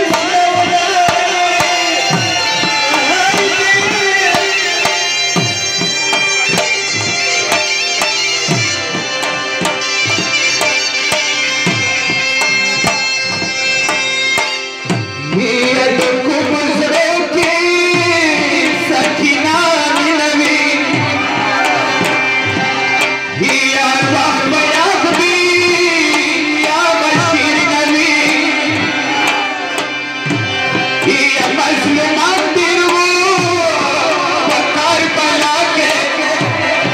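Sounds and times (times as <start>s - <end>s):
man singing: 0.0s - 7.4s, 15.0s - 30.0s, 30.6s - 36.9s
dhol drum beating: 0.0s - 36.9s
harmonium chords: 0.0s - 36.9s.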